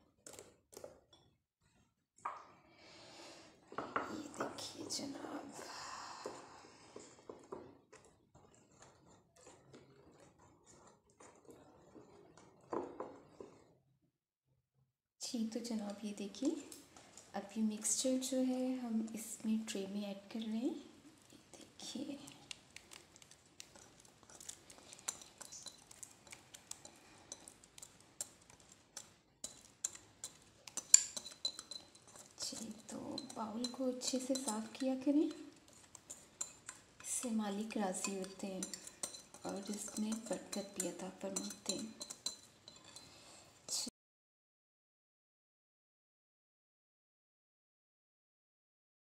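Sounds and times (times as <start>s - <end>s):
utensil scraping mixing bowl: 3.7s - 13.8s, 15.4s - 43.8s
utensil tapping glass bowl: 25.0s - 43.1s.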